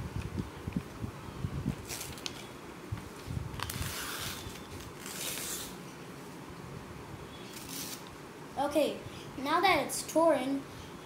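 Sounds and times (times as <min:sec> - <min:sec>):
paper tearing: 0:01.8 - 0:02.5, 0:03.6 - 0:05.8, 0:07.5 - 0:08.1.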